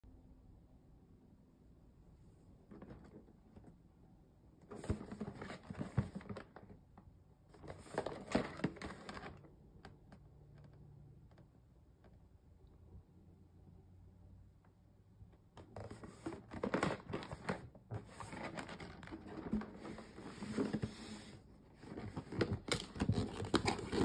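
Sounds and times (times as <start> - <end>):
cardboard box rustling and scraping: 15.7 - 24.0.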